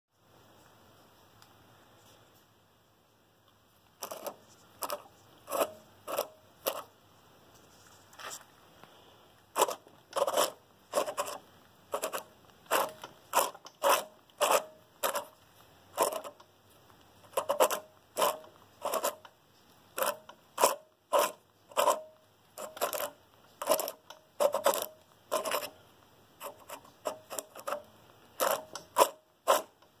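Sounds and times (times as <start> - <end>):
metal scrapes and clicks: 4.0 - 6.9, 9.5 - 16.5, 17.1 - 25.8, 26.4 - 30.0.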